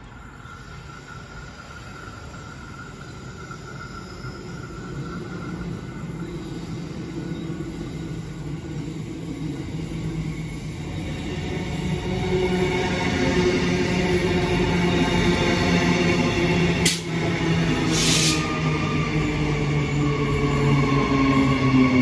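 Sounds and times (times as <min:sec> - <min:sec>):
steady high ringing: 0:00.0 - 0:08.3
train rumble and low hum: 0:00.0 - 0:22.0.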